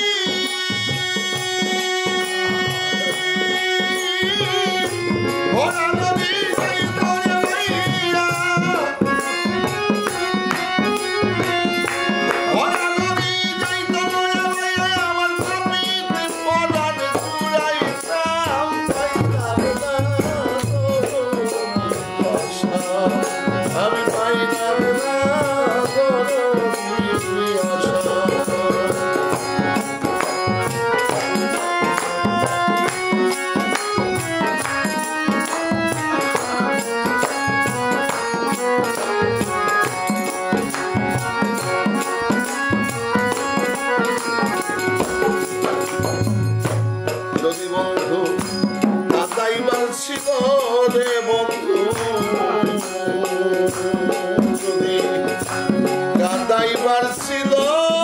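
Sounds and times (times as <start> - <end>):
harmonium chords: 0.0 - 58.0
man singing: 0.0 - 58.0
small hand drum: 0.0 - 58.0
barrel drum: 37.4 - 49.4.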